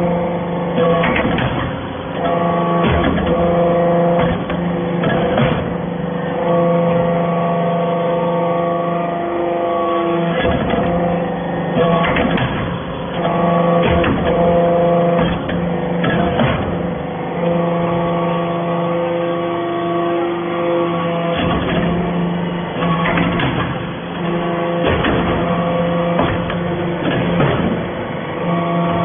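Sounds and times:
hydraulic power unit hum: 0:00.0 - 0:29.0
metallic clunks: 0:15.2 - 0:16.8.

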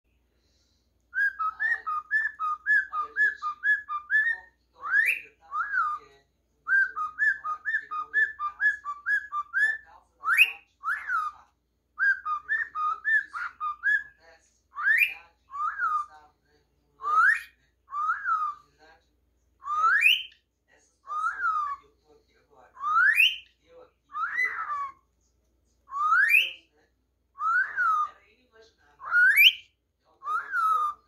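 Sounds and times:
cockatiel whistling: 0:01.1 - 0:06.1, 0:06.7 - 0:11.4, 0:12.0 - 0:14.2, 0:14.8 - 0:16.1, 0:17.0 - 0:18.6, 0:19.6 - 0:20.4, 0:21.1 - 0:21.8, 0:22.8 - 0:23.5, 0:24.1 - 0:25.0, 0:25.9 - 0:26.6, 0:27.4 - 0:28.2, 0:29.0 - 0:31.0.

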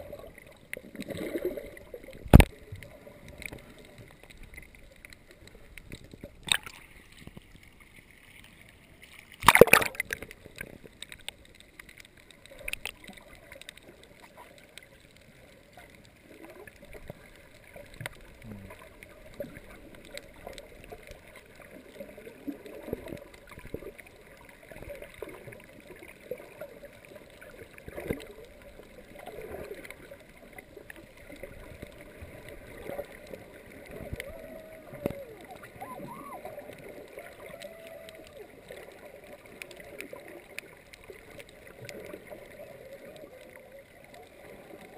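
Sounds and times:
small clicks: 0:02.0 - 0:18.4
muffled underwater noise: 0:09.5 - 0:44.9.

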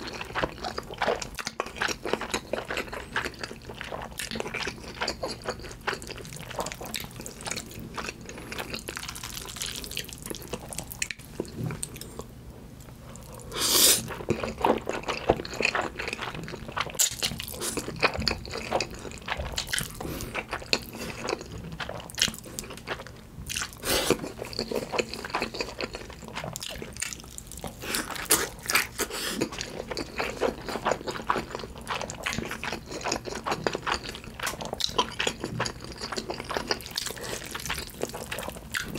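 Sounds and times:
wet chewing and lip smacking: 0:14.0 - 0:38.9.

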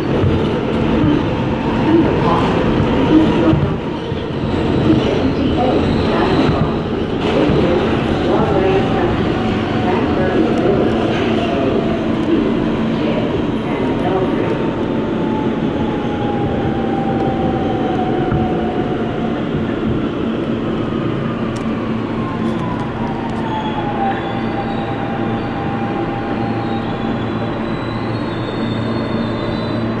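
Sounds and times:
train wheel and rail rumble: 0:00.0 - 0:30.0
faint high squeals and clicks: 0:22.3 - 0:30.0.

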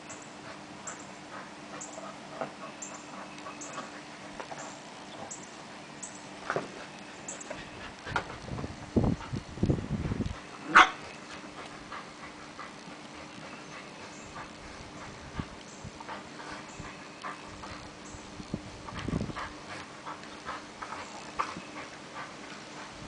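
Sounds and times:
soft puppy noises: 0:00.0 - 0:08.5.

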